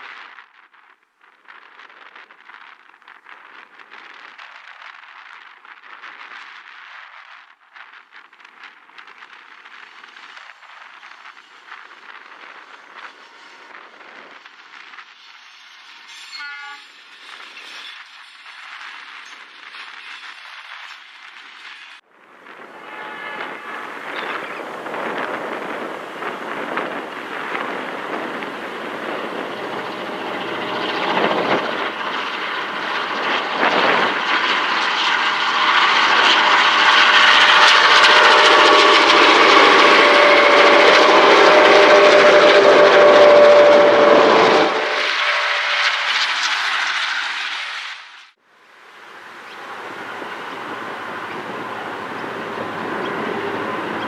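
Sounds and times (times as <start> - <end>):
train rolling past: 7.5 - 54.0
diesel locomotive engines: 7.6 - 54.0
train horn blast: 15.9 - 17.0, 22.6 - 24.6, 35.5 - 46.3
wind buffeting microphone: 22.2 - 47.0, 49.2 - 54.0.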